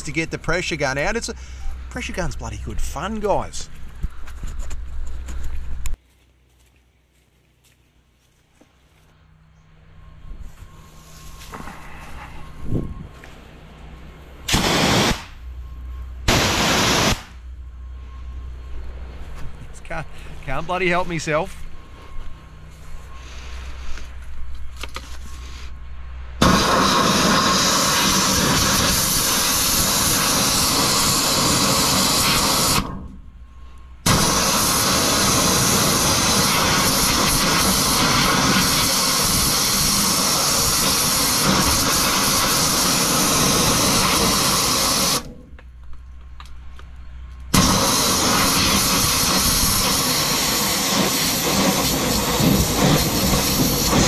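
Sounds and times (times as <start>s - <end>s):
high-pressure water spray hissing: 26.4s - 32.9s, 34.1s - 45.3s, 47.6s - 54.0s.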